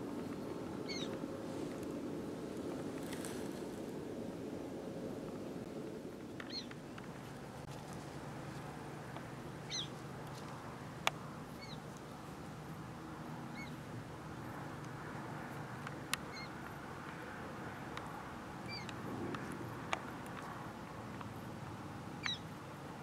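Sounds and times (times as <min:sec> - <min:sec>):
high chirping animal calls: 0:00.9 - 0:01.1, 0:09.7 - 0:09.9, 0:18.7 - 0:18.9, 0:22.2 - 0:22.4.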